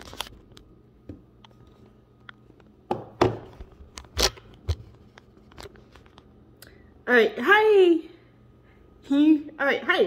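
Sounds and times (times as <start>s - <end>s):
phone handling knocks and thuds: 2.9s - 3.6s.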